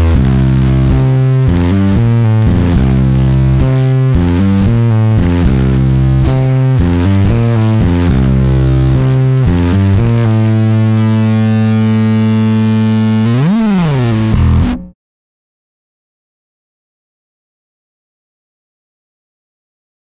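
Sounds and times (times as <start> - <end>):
distorted electric bass riff: 0.0 - 15.0.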